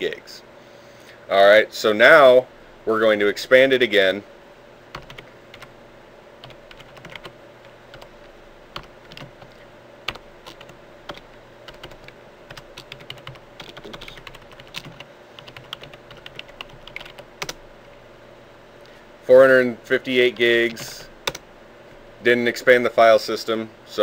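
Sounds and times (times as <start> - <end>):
faint steady hum: 0.0 - 24.0
computer keyboard typing: 4.9 - 5.7, 6.4 - 7.3, 7.9 - 17.6, 20.7 - 21.4.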